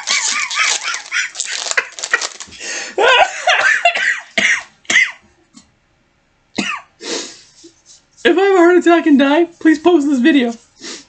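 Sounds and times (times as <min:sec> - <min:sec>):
trading cards rustling: 0:00.0 - 0:02.6
man laughing hard: 0:00.0 - 0:04.0.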